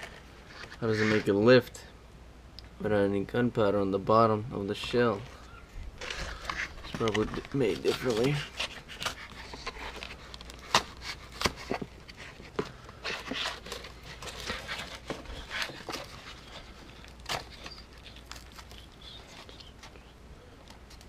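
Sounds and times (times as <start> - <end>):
paper layers tearing: 6.0 - 11.8
knife scraping cardboard tube: 6.0 - 18.1.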